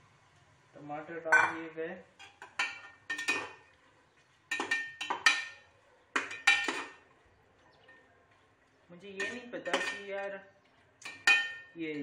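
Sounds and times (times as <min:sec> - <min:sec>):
metal spoon clanking against pot: 0:02.2 - 0:03.6, 0:04.5 - 0:05.6, 0:06.2 - 0:07.0, 0:09.2 - 0:10.3, 0:11.0 - 0:11.7.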